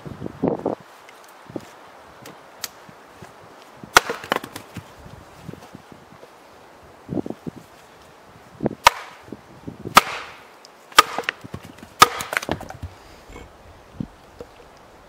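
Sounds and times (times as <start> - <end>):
hatchet chopping firewood: 3.9 - 4.8, 8.8 - 9.2, 9.9 - 13.0.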